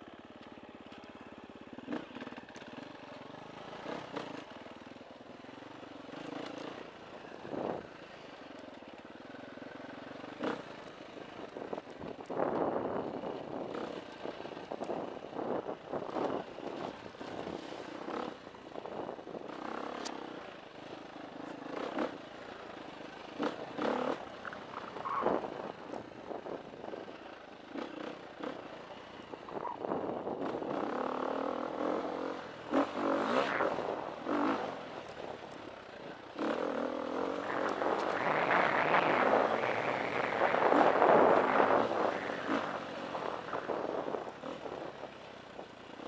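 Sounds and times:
dirt bike engine revving: 0:36.4 - 0:44.9.

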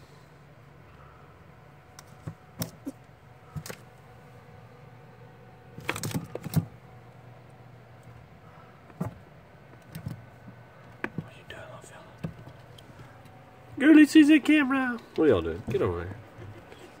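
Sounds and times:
steady low hum: 0:00.0 - 0:17.0
squirrel claws scrabbling on plastic: 0:05.7 - 0:06.8, 0:08.8 - 0:11.4.

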